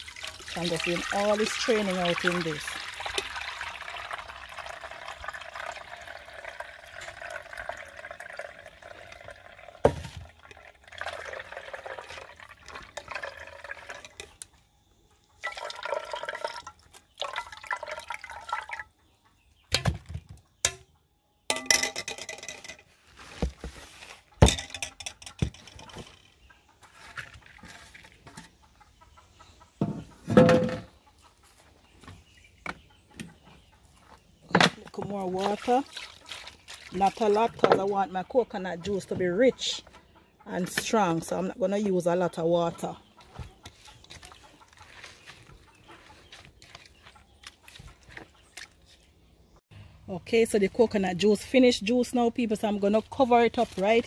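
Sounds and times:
liquid pouring through strainer: 0:00.0 - 0:14.2, 0:15.4 - 0:18.8
metal pots knocking: 0:21.5 - 0:22.9, 0:24.4 - 0:26.1, 0:29.8 - 0:30.9, 0:37.0 - 0:38.1.

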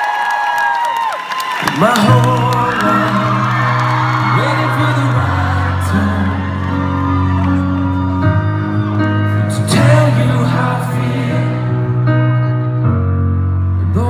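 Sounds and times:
fans whooping: 0:00.0 - 0:10.6
synth-pop band playing live: 0:01.4 - 0:14.0
person singing: 0:01.6 - 0:12.8, 0:13.7 - 0:14.0.

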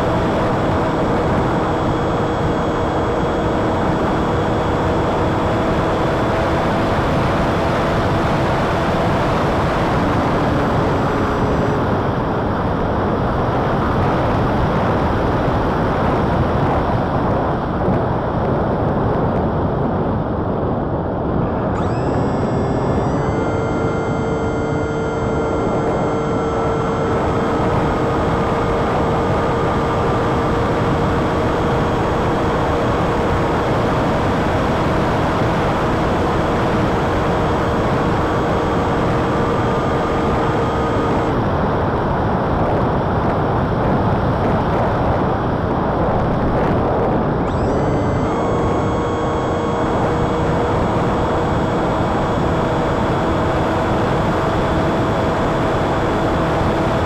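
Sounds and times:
electric motor whine: 0:00.0 - 0:17.1, 0:21.4 - 0:42.7, 0:43.8 - 0:57.0
wind on microphone: 0:08.0 - 0:57.0.

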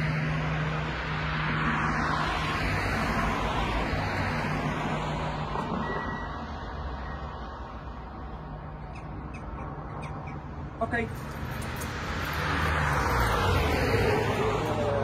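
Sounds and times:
car passing: 0:00.0 - 0:08.8, 0:09.6 - 0:15.0.

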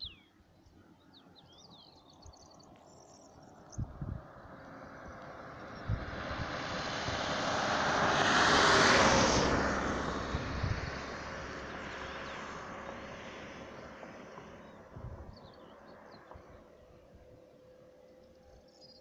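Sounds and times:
van driving past: 0:04.0 - 0:17.6.

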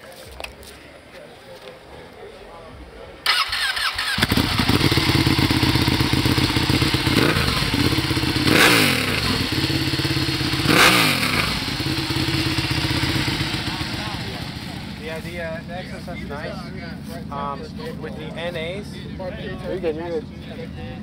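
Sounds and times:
motorcycle starter whirring: 0:03.2 - 0:10.6
motorcycle engine idling and revving: 0:03.3 - 0:21.0.

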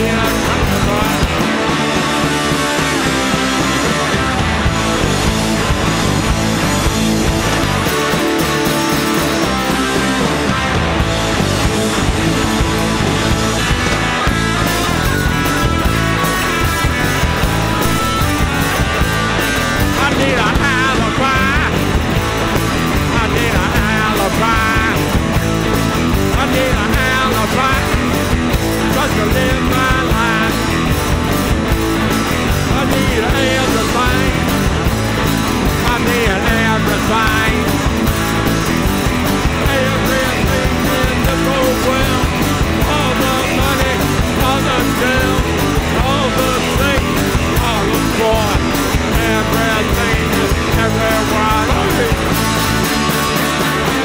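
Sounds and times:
person singing: 0:00.0 - 0:04.1, 0:19.8 - 0:22.0, 0:22.9 - 0:25.2, 0:26.2 - 0:30.8, 0:32.4 - 0:34.7, 0:35.6 - 0:38.0, 0:39.4 - 0:52.4
rock band playing: 0:00.0 - 0:54.0.

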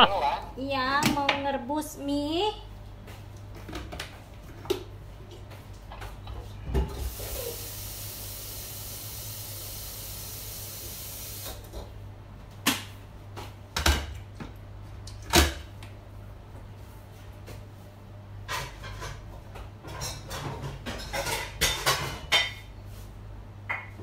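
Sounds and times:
kitchen tap running: 0:07.0 - 0:11.7
kitchenware knocks and clatters: 0:18.5 - 0:22.7.

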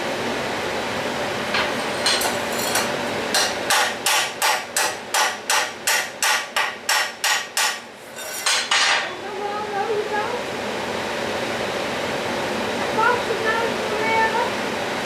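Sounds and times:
hammer striking metal: 0:01.6 - 0:07.8.

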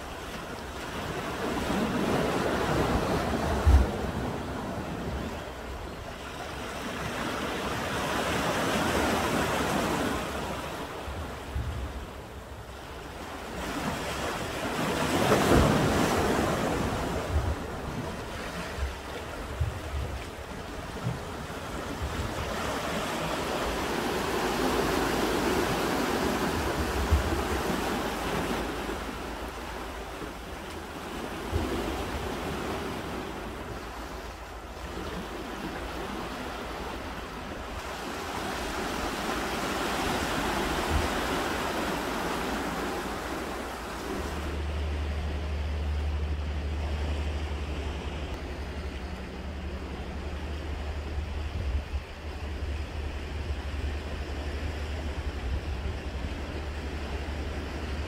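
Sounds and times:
sea waves washing against rocks: 0:00.0 - 0:45.2
wind buffeting microphone: 0:08.8 - 0:58.0.

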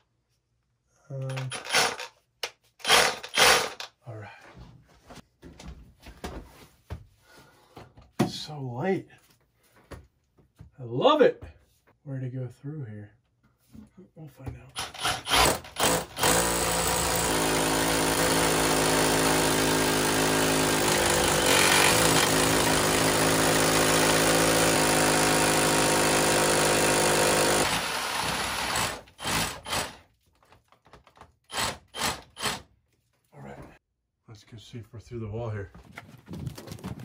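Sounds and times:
rotary hammer drill boring: 0:01.3 - 0:02.1, 0:02.8 - 0:03.9, 0:14.8 - 0:30.0, 0:31.5 - 0:32.6.

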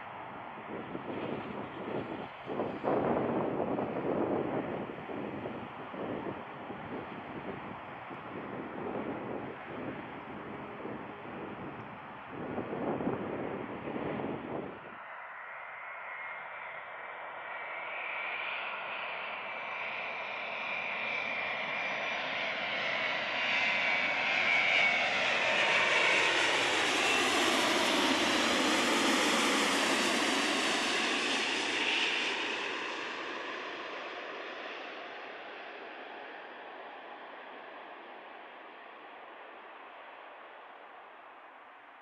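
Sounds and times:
jet engines rushing: 0:16.5 - 0:40.6.

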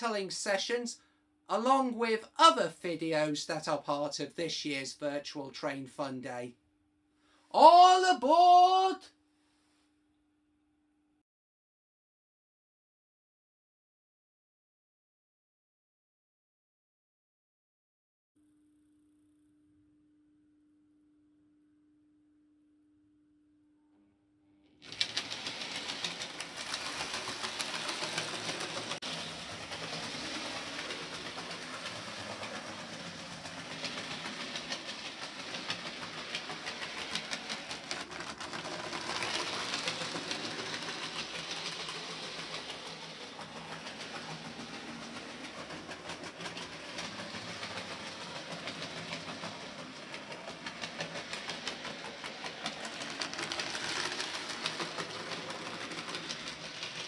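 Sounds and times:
model train running whir: 0:24.8 - 0:57.0
wheels clicking on track: 0:24.8 - 0:57.0.

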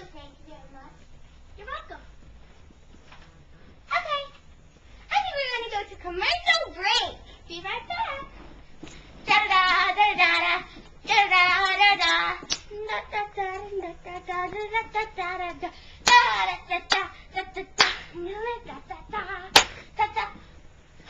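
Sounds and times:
child singing: 0:09.3 - 0:20.4
sharp claps: 0:11.6 - 0:12.7, 0:16.0 - 0:17.1, 0:17.8 - 0:18.2, 0:19.5 - 0:19.9.

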